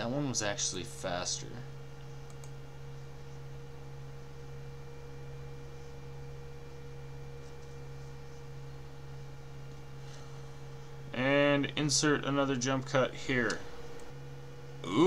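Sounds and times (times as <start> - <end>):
low electrical hum: 0.0 - 15.0
faint clicks: 2.2 - 2.6.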